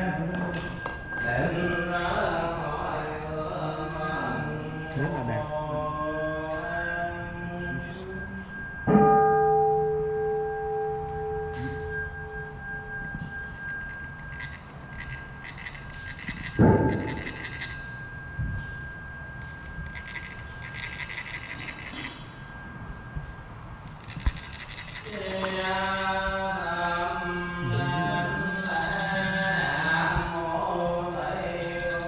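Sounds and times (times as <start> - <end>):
metal bell ringing: 0.0 - 32.0
fine metallic rasping: 11.7 - 32.0.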